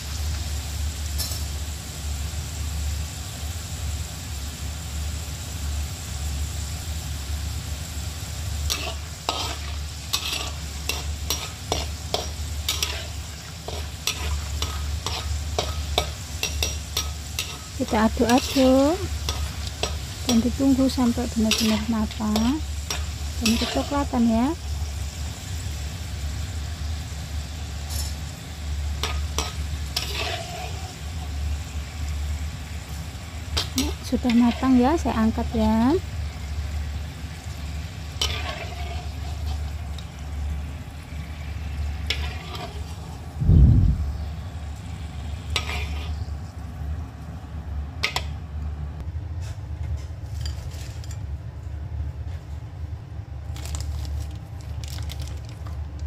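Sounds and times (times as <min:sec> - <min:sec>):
potatoes sizzling in hot oil: 0:00.0 - 0:47.4
low hum: 0:43.2 - 0:49.1.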